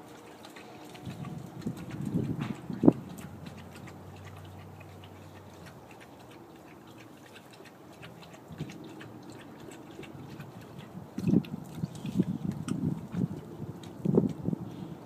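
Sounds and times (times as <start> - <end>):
light ticks and rustles: 0.0 - 14.9
dogs growling: 0.6 - 11.4.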